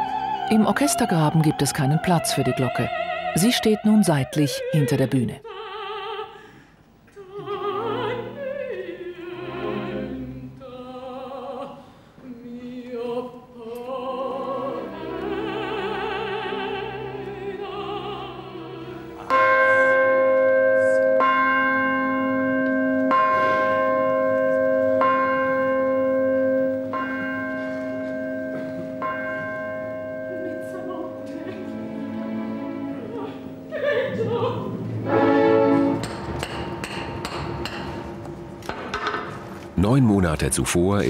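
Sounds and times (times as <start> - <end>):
operatic singing: 0.0 - 6.4, 7.1 - 21.0, 29.0 - 37.8
church bell ringing: 19.1 - 33.6.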